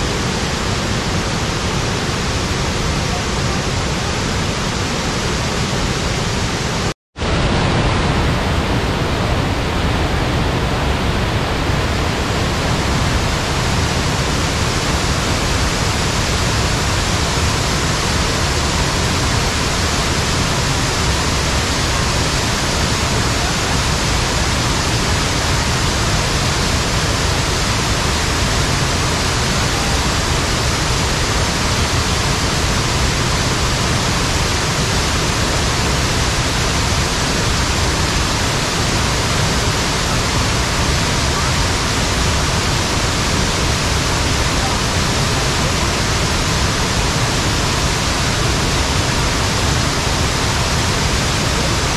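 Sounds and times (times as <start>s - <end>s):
waterfall rushing: 0.0s - 51.9s.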